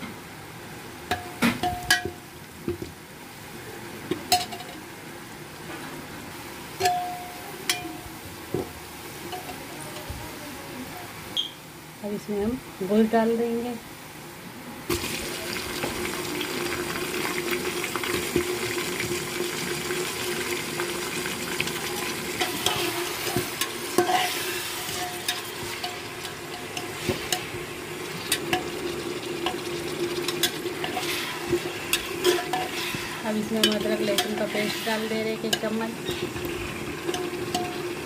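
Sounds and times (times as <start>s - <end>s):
meat sizzling in hot oil: 14.9s - 38.0s.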